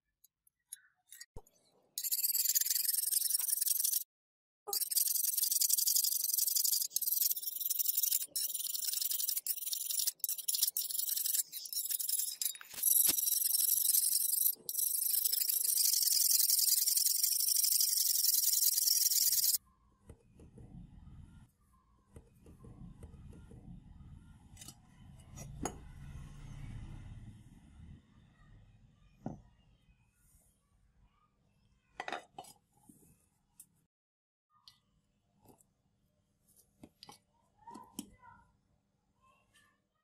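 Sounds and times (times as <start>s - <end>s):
file rasping on steel blade: 4.7s - 19.6s.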